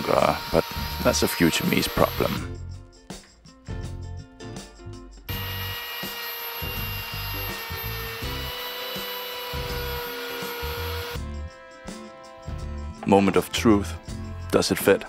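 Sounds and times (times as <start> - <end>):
router whining and cutting wood: 0.0 - 2.5, 5.3 - 11.2
background music: 0.0 - 15.0.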